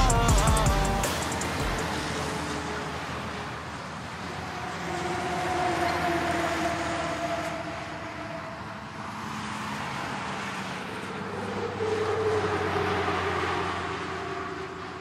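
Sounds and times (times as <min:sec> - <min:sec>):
distant city traffic hum: 0:00.0 - 0:15.0.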